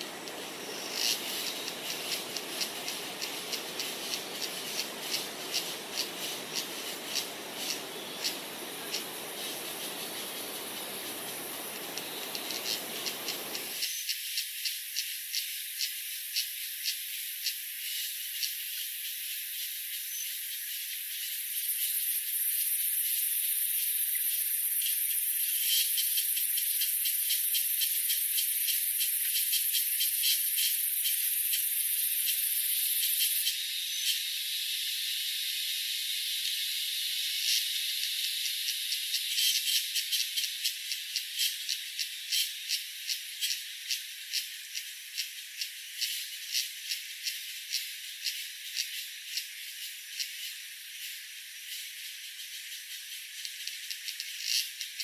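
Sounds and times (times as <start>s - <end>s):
low background hiss: 0.0s - 13.7s
high-pitched insect buzz: 0.0s - 55.0s
insects pulsing chirps: 0.0s - 55.0s.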